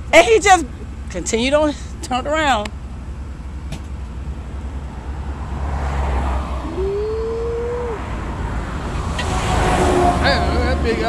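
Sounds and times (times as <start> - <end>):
low traffic rumble: 0.0 - 11.0
vehicle tyre noise passing: 2.7 - 11.0
brief rising tone: 6.3 - 8.2.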